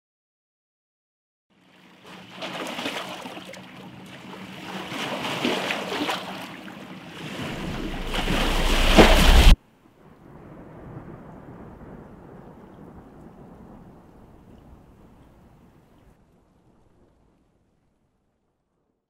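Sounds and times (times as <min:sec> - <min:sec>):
waves breaking over rocks: 0:01.9 - 0:09.6
deep rumble: 0:07.2 - 0:09.6.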